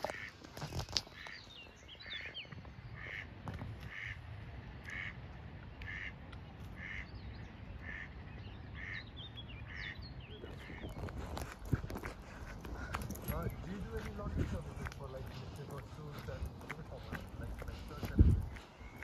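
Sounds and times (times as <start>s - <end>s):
small birds chirping: 0.0s - 4.1s, 4.8s - 19.0s
duck calling: 3.9s - 4.2s, 5.8s - 6.2s, 6.8s - 7.1s, 7.8s - 8.1s.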